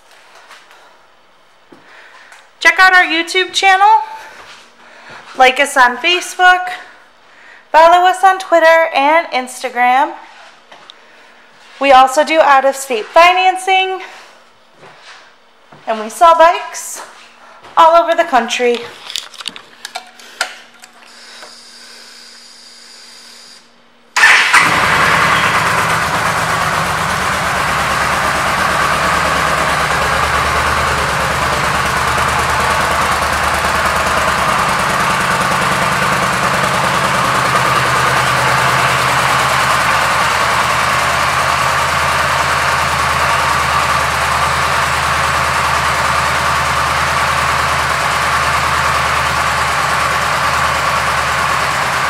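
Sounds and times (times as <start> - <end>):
motorcycle engine starting and idling: 24.2 - 52.0.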